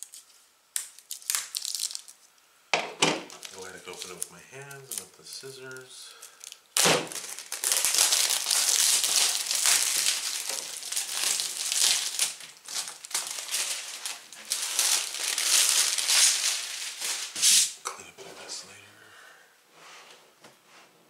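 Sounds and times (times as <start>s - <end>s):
plastic shrink-wrap tearing: 0.0s - 2.3s, 3.2s - 5.1s, 5.7s - 17.7s.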